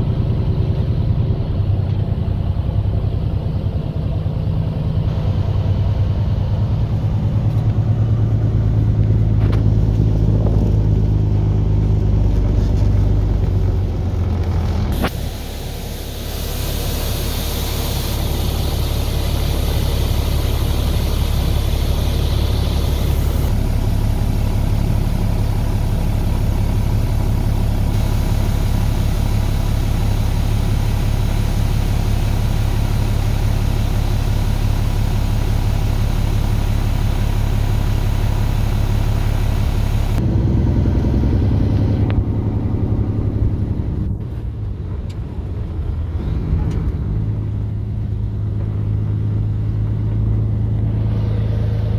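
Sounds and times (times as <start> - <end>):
truck diesel engine running: 0.0 - 51.9
steady hiss: 15.0 - 23.5.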